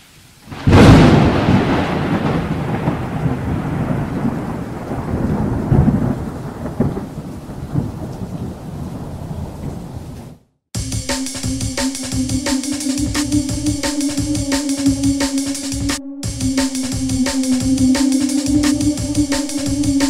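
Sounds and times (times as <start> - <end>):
steady rain: 0.0 - 10.4
thunder rumbling: 0.5 - 10.4, 12.1 - 20.0.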